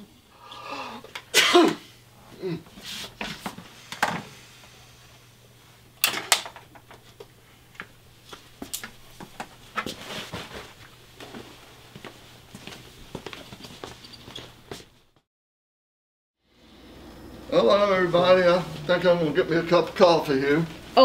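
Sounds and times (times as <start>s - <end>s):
man sneezing: 0.8s - 2.7s.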